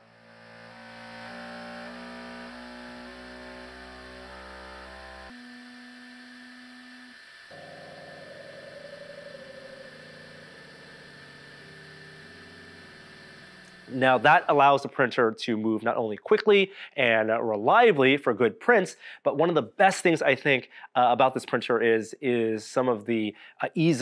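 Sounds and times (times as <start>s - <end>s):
low hum: 0.0s - 14.7s
printer motors humming stepped tones: 1.3s - 14.5s.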